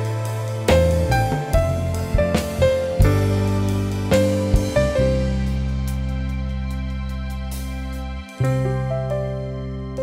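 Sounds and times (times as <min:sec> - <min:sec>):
sad keyboard chords: 0:00.0 - 0:10.0.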